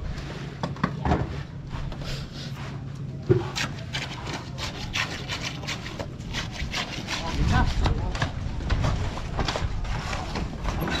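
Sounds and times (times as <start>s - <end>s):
shovel scraping wet concrete: 3.4s - 8.3s.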